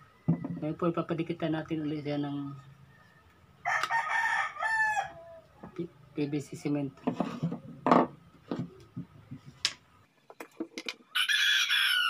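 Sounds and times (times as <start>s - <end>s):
rooster crowing: 2.8s - 5.5s, 11.1s - 12.0s.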